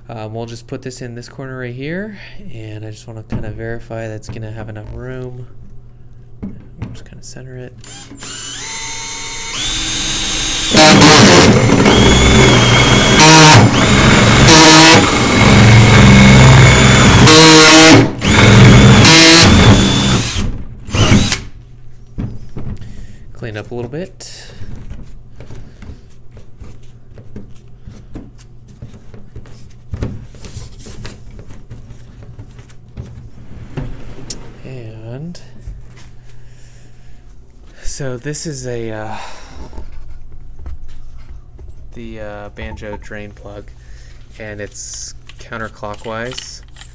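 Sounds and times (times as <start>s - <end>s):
cordless drill whine: 7.8s - 21.5s
hole saw cutting plastic: 7.8s - 21.5s
gloved hand rubbing plastic: 24.5s - 33.8s.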